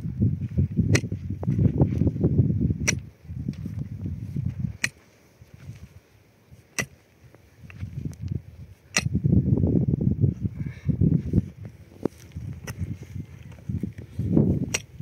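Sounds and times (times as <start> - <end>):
churned earth noise: 0.0 - 9.4, 10.3 - 15.0
pick striking rocky soil: 0.5 - 2.1, 2.8 - 5.9, 6.5 - 9.2, 11.9 - 15.0.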